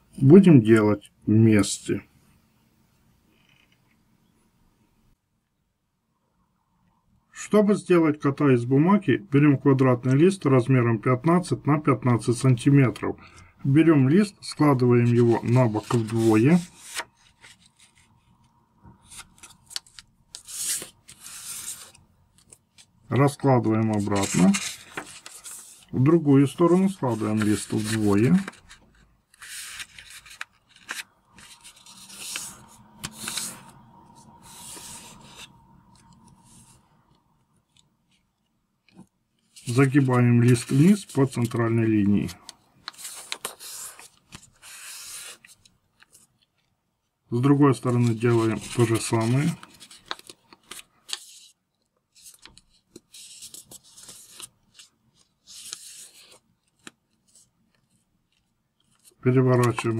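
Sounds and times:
paper rustling and crackling: 15.1s - 18.4s, 19.0s - 33.8s, 38.9s - 46.7s, 47.7s - 59.9s.

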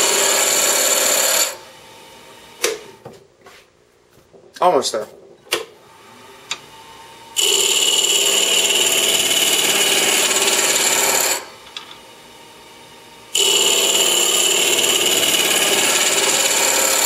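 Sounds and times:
gouge scraping spinning wood: 13.4s - 17.0s.

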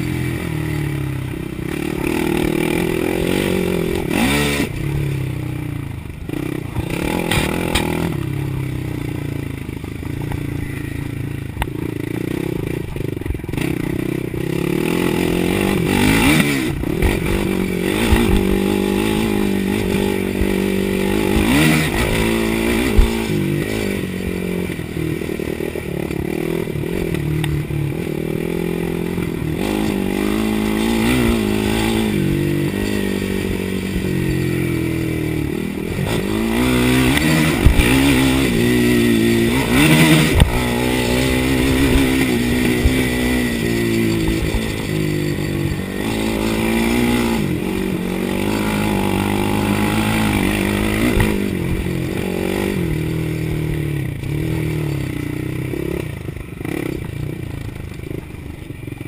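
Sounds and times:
quad engine revving: 0.0s - 58.8s.

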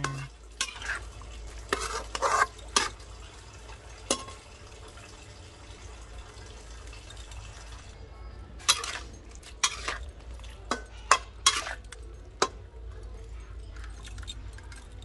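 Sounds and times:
metal spatula scraping a wok: 0.0s - 3.0s, 8.6s - 12.0s
frying hiss: 0.0s - 8.0s.

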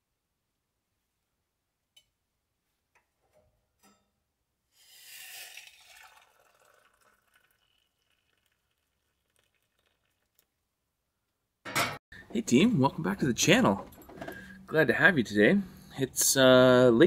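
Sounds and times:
water running: 5.1s - 10.4s.

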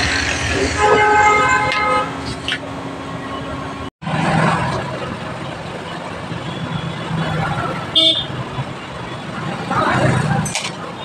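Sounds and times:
road traffic noise: 0.0s - 11.0s
vehicle horn honking: 0.6s - 2.2s, 7.9s - 8.4s.

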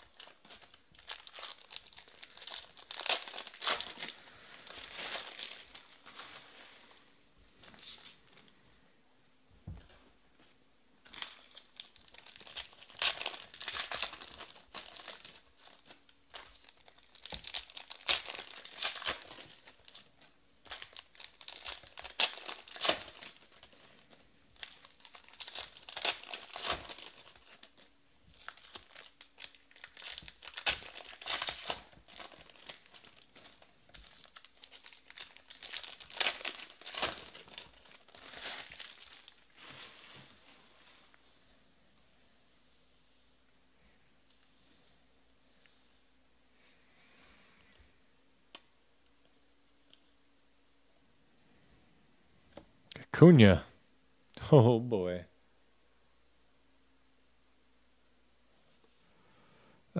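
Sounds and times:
foil wrappers tearing and crinkling: 0.0s - 6.4s, 11.0s - 40.4s.

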